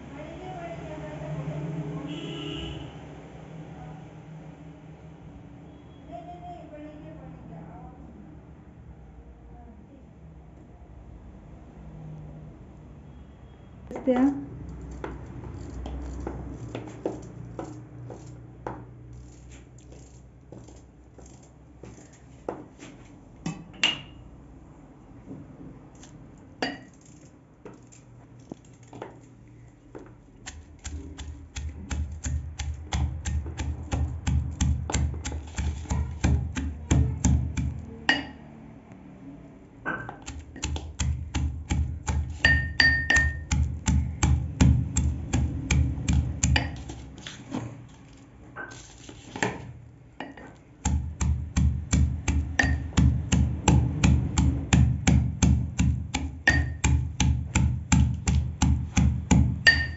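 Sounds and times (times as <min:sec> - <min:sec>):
pestle pounding in metal mortar: 0:30.4 - 0:38.4, 0:40.0 - 0:47.2, 0:50.8 - 0:59.9.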